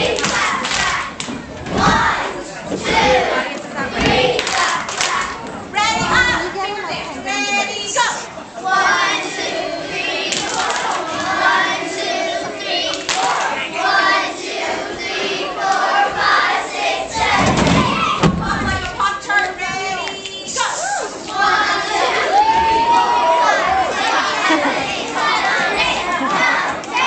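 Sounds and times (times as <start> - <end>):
children calling and chattering: 0.0 - 27.0
heavy thuds: 1.2 - 3.3, 17.2 - 19.0.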